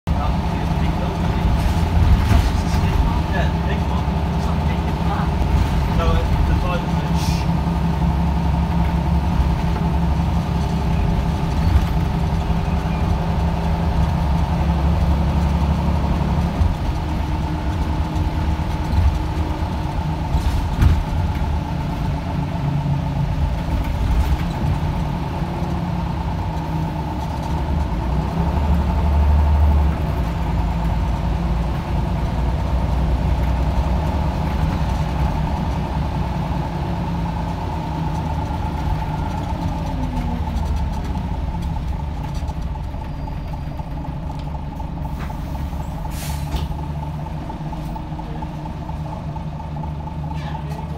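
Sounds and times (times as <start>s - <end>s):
bus diesel engine hum: 0.0s - 50.9s
constant whine: 35.6s - 45.5s.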